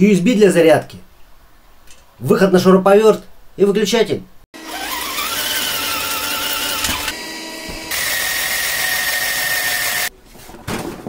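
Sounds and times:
electric drill boring through sheet steel: 0:04.6 - 0:10.1.

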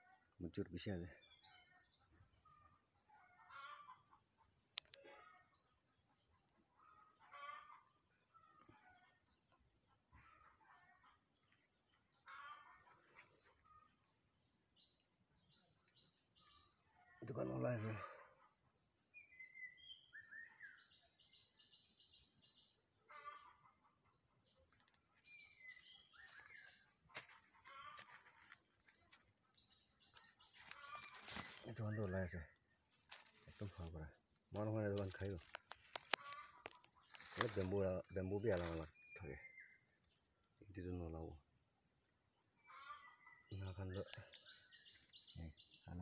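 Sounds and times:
bird calls: 0:00.0 - 0:41.5, 0:42.5 - 0:46.0
distant chickens clucking: 0:03.2 - 0:11.2, 0:11.9 - 0:14.0, 0:23.0 - 0:32.3, 0:34.9 - 0:38.9, 0:42.6 - 0:43.4.

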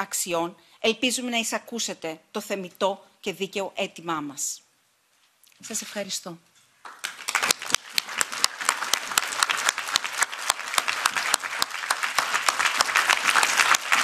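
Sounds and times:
audience applauding: 0:06.8 - 0:14.0.

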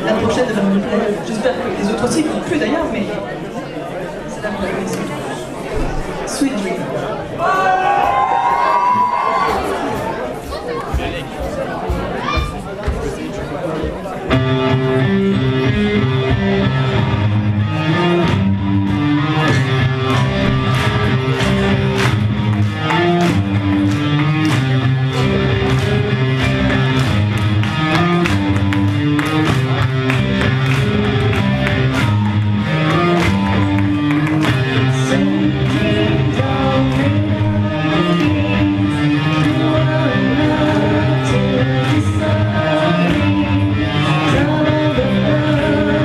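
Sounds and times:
steady drum beat: 0:07.5 - 0:14.8
bass guitar: 0:14.3 - 0:46.0
electric guitars: 0:14.3 - 0:46.0.

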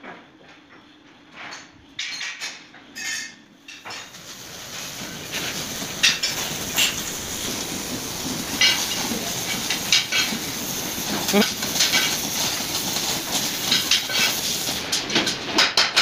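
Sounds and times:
workshop background hiss: 0:00.0 - 0:16.0
steel striking steel: 0:05.3 - 0:12.8.

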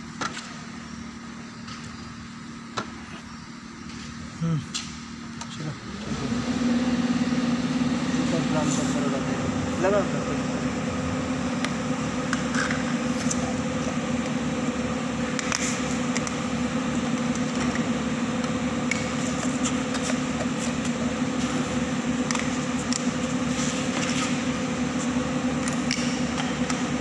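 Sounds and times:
machine motor humming: 0:05.7 - 0:27.0.

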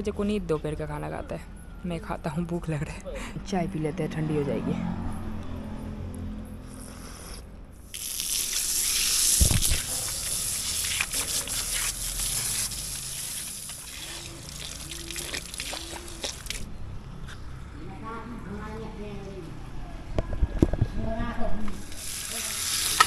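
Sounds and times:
tap water running: 0:07.9 - 0:16.7, 0:21.8 - 0:23.0
small splashes: 0:08.0 - 0:16.7.

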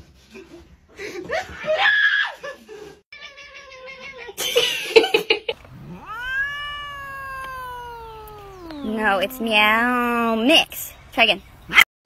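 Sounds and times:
cat meowing: 0:05.6 - 0:10.4.

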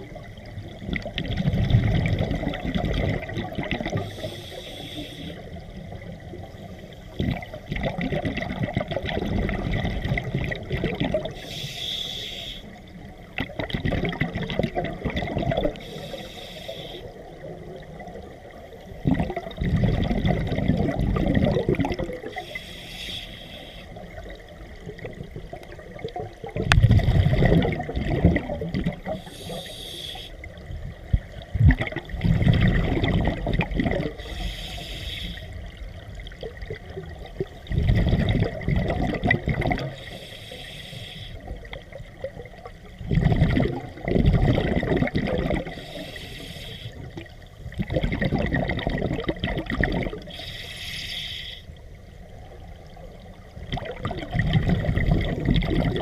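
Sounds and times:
bubbling exhaled air underwater: 0:00.0 - 0:50.8, 0:52.5 - 0:56.0
regulator inhale hiss: 0:04.0 - 0:05.6, 0:11.3 - 0:12.9, 0:15.8 - 0:17.4, 0:22.3 - 0:24.2, 0:29.0 - 0:30.6, 0:34.2 - 0:35.7, 0:39.8 - 0:41.6, 0:45.7 - 0:47.2, 0:50.2 - 0:51.8.

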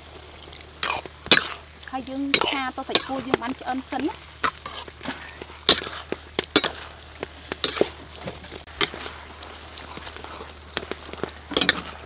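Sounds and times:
frying sizzle: 0:00.0 - 0:12.0
metal spoon scraping a wok: 0:04.4 - 0:06.9, 0:07.6 - 0:08.0, 0:11.5 - 0:12.0.

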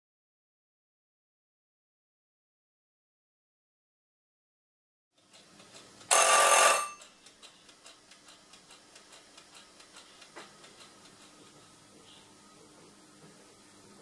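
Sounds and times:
clockwork timer ticking: 0:05.2 - 0:11.9.

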